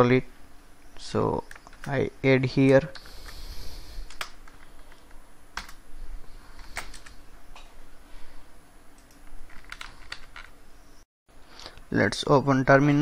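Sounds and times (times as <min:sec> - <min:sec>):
computer keyboard typing: 0:09.0 - 0:10.5.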